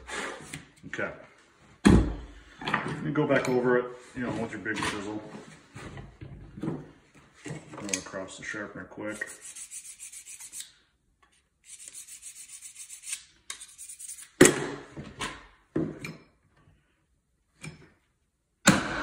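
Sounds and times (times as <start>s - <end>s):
chisel rasping on sharpener: 9.2s - 10.8s, 11.7s - 14.4s.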